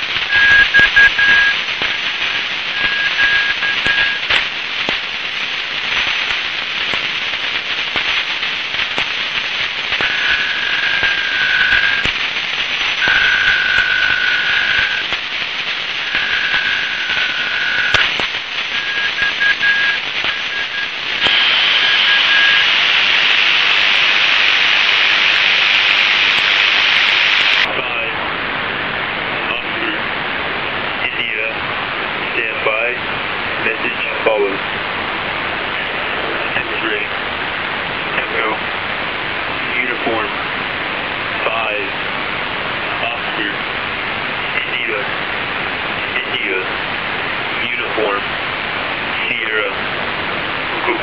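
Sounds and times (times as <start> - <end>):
warbling radio tone signal: 0.0 - 4.5, 6.0 - 28.1
static hiss: 0.0 - 51.0.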